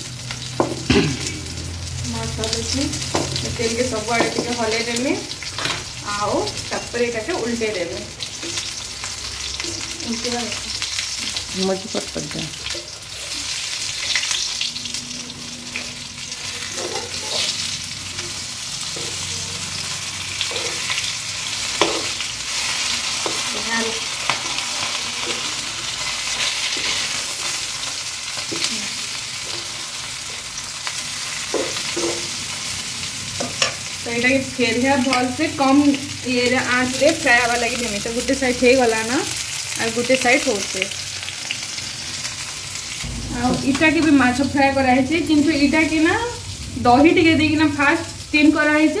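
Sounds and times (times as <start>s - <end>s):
fish sizzling in hot oil: 0.0s - 49.0s.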